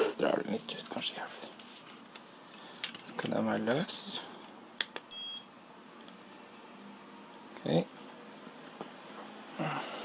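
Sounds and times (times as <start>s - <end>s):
short breathy grunt: 9.6s - 10.0s.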